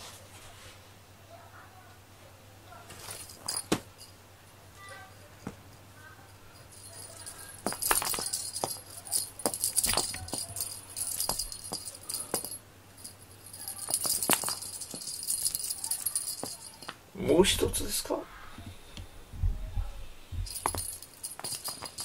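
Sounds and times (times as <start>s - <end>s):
small bell and rattle jingling: 3.0s - 4.2s, 4.8s - 17.0s, 20.4s - 22.0s.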